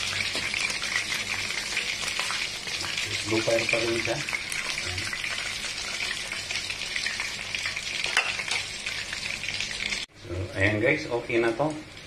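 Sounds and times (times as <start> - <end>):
chicken frying in oil: 0.0 - 12.0.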